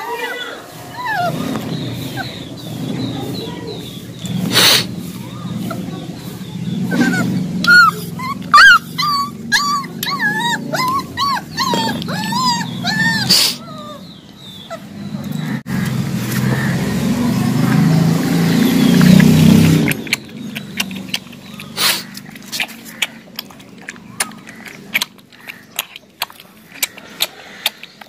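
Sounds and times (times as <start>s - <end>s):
puppy whimpering: 0.0s - 2.9s, 6.8s - 15.3s.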